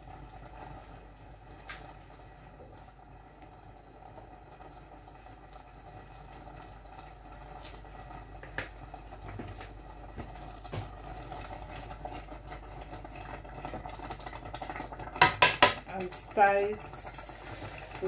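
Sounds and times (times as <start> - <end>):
pot bubbling with soft pops: 0.0 - 18.0.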